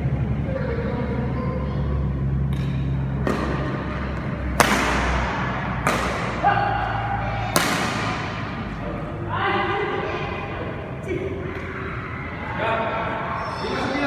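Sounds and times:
rackets striking shuttlecock: 0:02.4 - 0:08.8.

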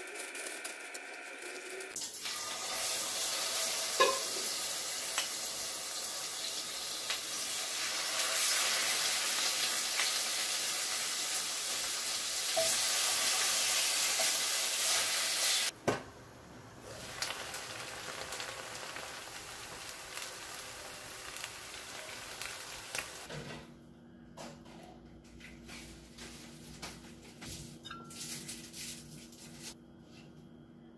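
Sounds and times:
food sizzling in a pan: 0:02.0 - 0:15.8, 0:16.8 - 0:23.3.

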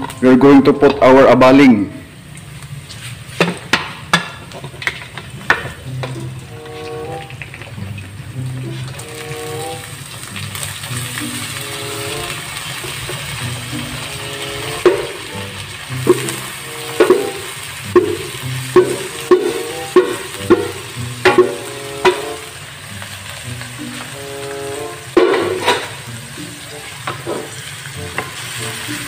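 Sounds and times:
oil sizzling in pan: 0:02.1 - 0:29.0
wooden spatula knocking on pot: 0:03.4 - 0:06.3, 0:14.8 - 0:15.2, 0:16.0 - 0:22.3, 0:25.2 - 0:25.8.

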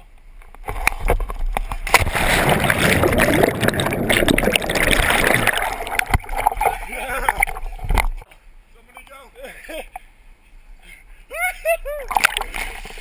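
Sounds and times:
splash into river: 0:01.8 - 0:07.6
underwater churning water and bubbles: 0:01.9 - 0:08.2.

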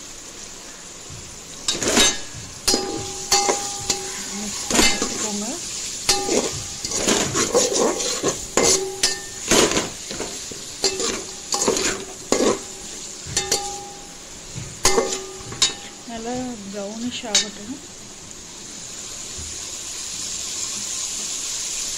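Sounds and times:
onions sizzling in oil: 0:00.0 - 0:21.9
metal ladle scraping a pot: 0:01.7 - 0:14.0, 0:14.8 - 0:15.9.

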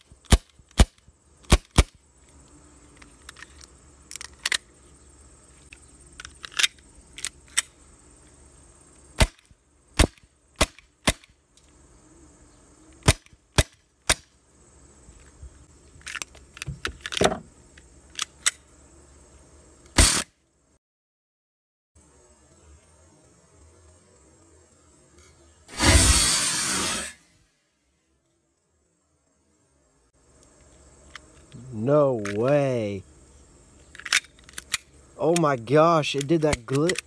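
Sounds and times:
airsoft pistol shots: 0:00.3 - 0:02.0, 0:09.2 - 0:09.4, 0:10.0 - 0:11.3, 0:20.0 - 0:20.3, 0:25.7 - 0:27.2.

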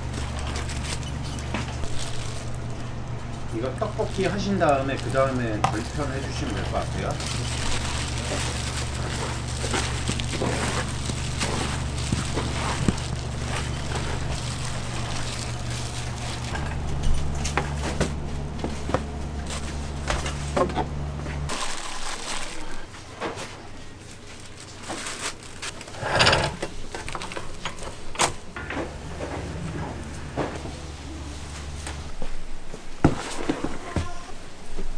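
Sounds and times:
hands handling plastic wrap and trays: 0:00.0 - 0:20.6, 0:21.4 - 0:26.0
low machine hum: 0:00.0 - 0:34.9.

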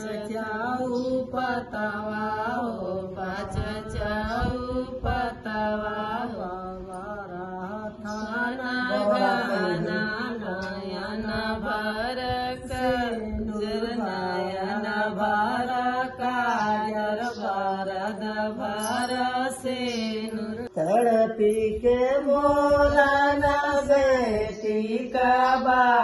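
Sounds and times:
women singing folk song: 0:00.0 - 0:20.8.

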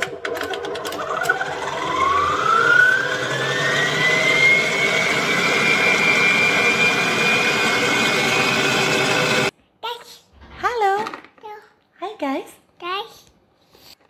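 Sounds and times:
stand mixer motor whine: 0:00.0 - 0:09.5.

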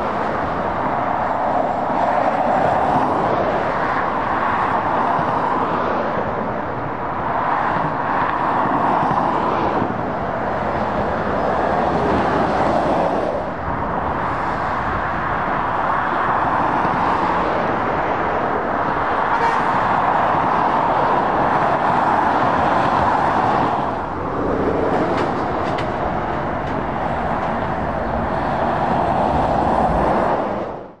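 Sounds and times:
road traffic passing: 0:00.0 - 0:31.0.

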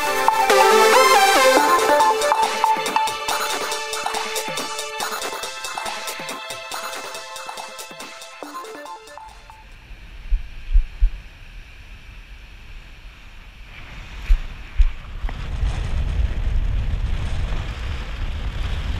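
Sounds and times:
wind buffeting microphone: 0:14.1 - 0:18.9.

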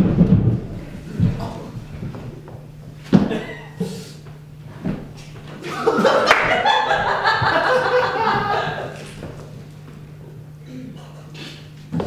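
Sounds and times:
audience laughing: 0:05.6 - 0:09.1.

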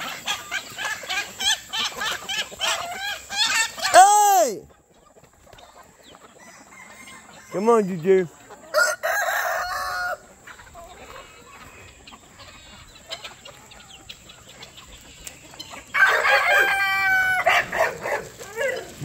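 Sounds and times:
hens clucking: 0:00.0 - 0:19.0
rooster crowing: 0:06.4 - 0:07.8, 0:08.7 - 0:10.3, 0:15.9 - 0:18.8.

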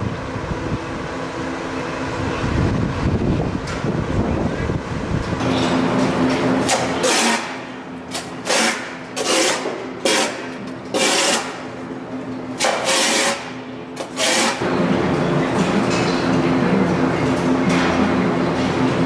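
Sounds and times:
scraper on wet concrete: 0:12.6 - 0:13.4.

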